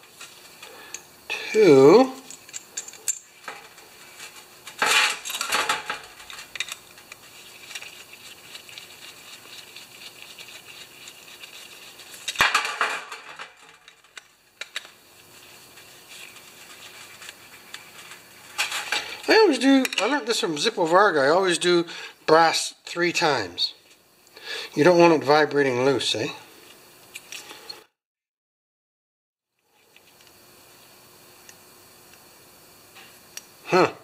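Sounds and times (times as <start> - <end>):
metal parts clinking on steel tray: 2.0 - 8.1.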